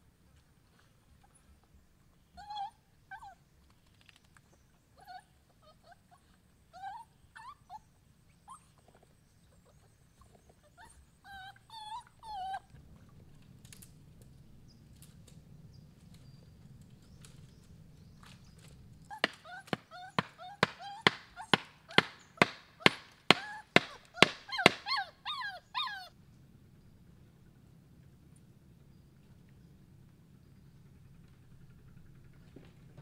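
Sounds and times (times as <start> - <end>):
puppy whimpering: 2.4 - 3.4, 5.0 - 7.9, 10.6 - 12.7, 19.1 - 26.1.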